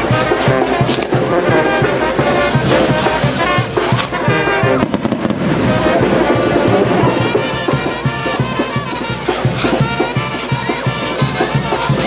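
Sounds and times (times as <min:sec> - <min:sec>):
brass band music: 0:00.0 - 0:12.0
fireworks crackling and popping: 0:00.0 - 0:12.0
sharp cracks of fireworks: 0:02.5 - 0:08.0.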